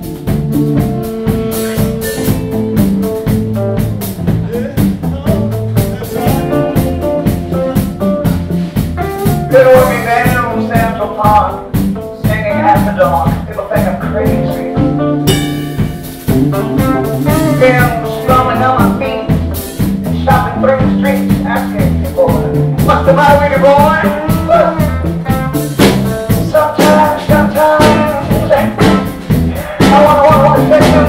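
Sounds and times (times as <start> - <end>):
live rock band playing: 0.0 - 31.0
man singing into microphone: 9.5 - 11.6, 12.2 - 14.9, 16.6 - 19.4, 20.2 - 25.0, 26.3 - 31.0.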